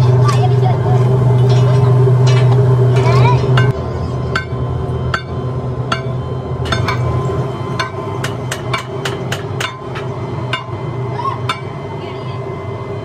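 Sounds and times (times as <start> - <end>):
steel bars clanking: 0.0 - 7.2, 7.8 - 10.8
machine low drone: 0.0 - 13.0.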